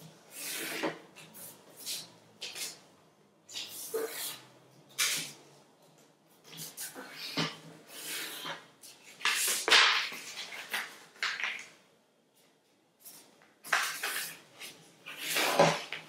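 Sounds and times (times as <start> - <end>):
paper rustling and folding: 8.1 - 11.8, 13.1 - 16.0.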